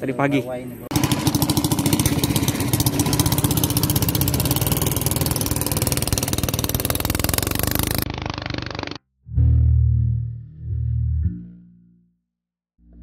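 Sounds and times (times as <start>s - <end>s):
small boat engine pulsing: 0.9s - 10.1s.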